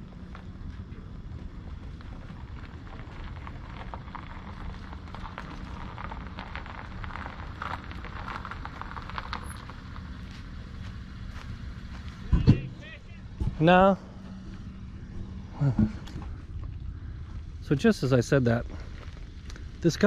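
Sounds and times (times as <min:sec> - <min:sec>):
car engine idling: 0:00.0 - 0:20.0
footsteps on sand: 0:10.2 - 0:12.4.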